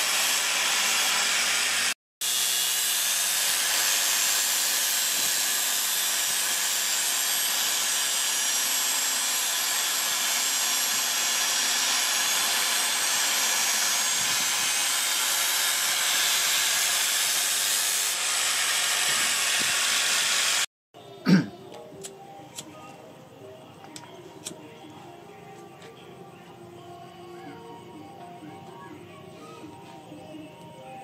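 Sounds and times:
angle grinder grinding steel: 0.0 - 20.7.

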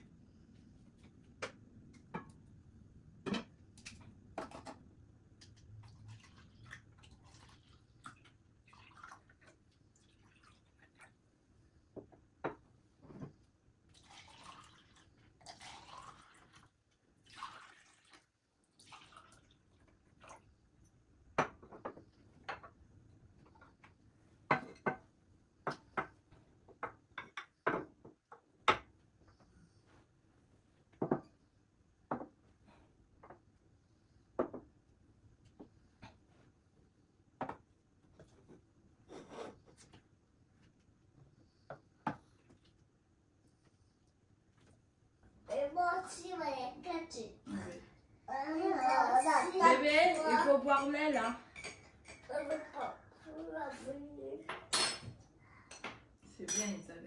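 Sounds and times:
milk pouring into cup: 5.9 - 11.2, 13.9 - 20.5
tableware clinking: 54.5 - 56.9.

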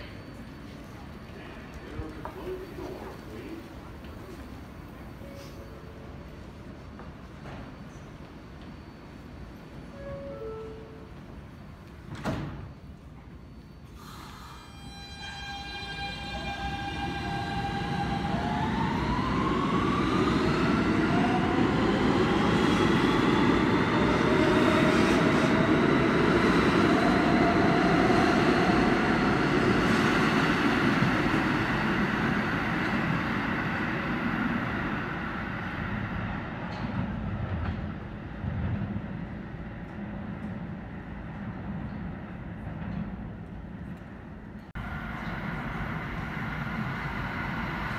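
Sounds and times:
subway train motors whining: 0.0 - 47.9
wheels rumbling on rail: 14.8 - 47.9.

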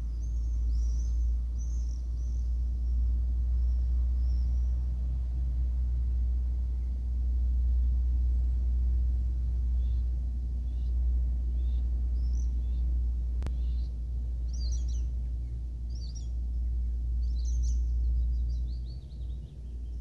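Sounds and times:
small birds chirping: 0.0 - 5.3, 6.6 - 8.2, 9.6 - 20.0
wind rumble on microphone: 0.0 - 20.0.

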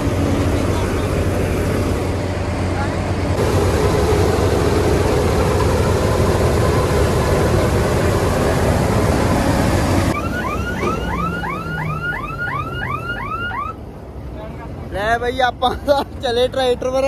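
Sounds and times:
diesel engine running: 0.0 - 15.1
rapid rising and falling chirps: 10.1 - 13.8.

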